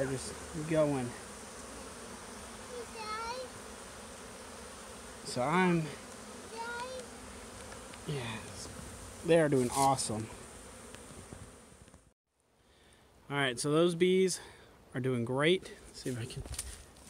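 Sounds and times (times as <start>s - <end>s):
bee buzzing past: 0.0s - 12.2s
honeybees humming: 0.0s - 12.2s.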